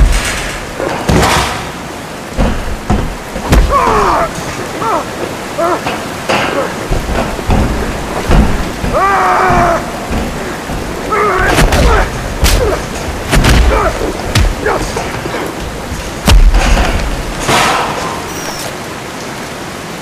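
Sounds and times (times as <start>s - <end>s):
punches landing: 0.0s - 4.6s, 6.3s - 18.0s
falling water rushing: 0.0s - 20.0s
grunts of effort: 3.5s - 15.6s.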